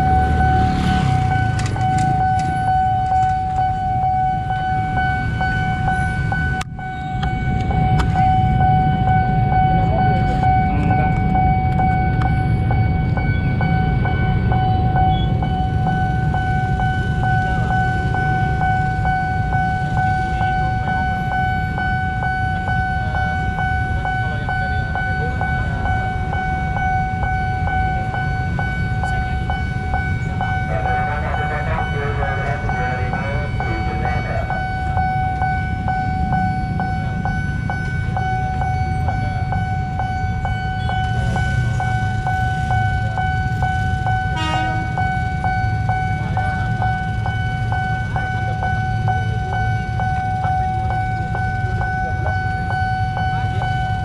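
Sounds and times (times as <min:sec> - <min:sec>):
level crossing alarm tone: 0:00.0 - 0:54.0
low rumble of traffic: 0:00.0 - 0:54.0.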